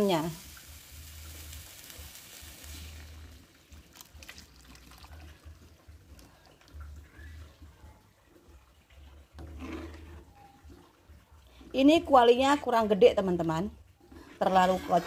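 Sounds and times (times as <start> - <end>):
liquid pouring into a wok: 0.4 - 7.3.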